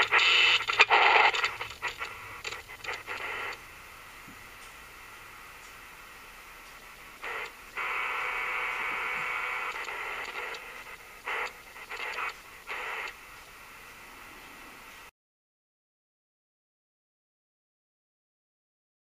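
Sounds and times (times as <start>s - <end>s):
radio static hissing: 0.0s - 15.1s.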